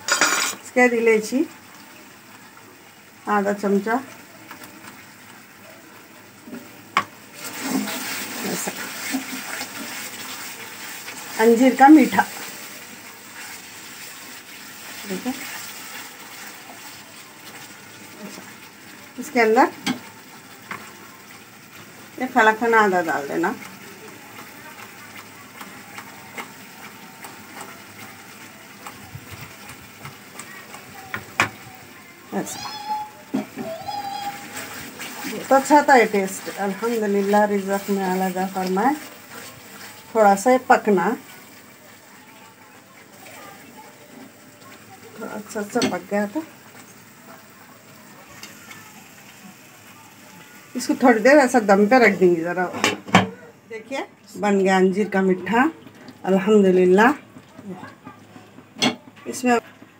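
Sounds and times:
pan hissing and popping: 0.0s - 53.4s
spatula stirring thick syrup: 20.6s - 32.0s, 33.9s - 45.8s
spatula knocking on pan: 29.3s - 31.7s.

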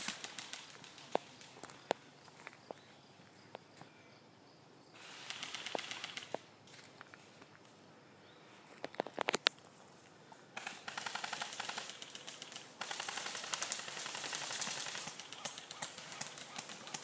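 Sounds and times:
automatic airsoft burst: 5.0s - 6.4s.

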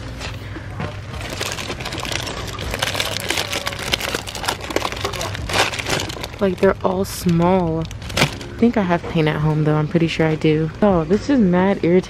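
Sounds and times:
steady low hum: 0.0s - 12.0s
plastic wrap crinkling: 0.9s - 8.8s.

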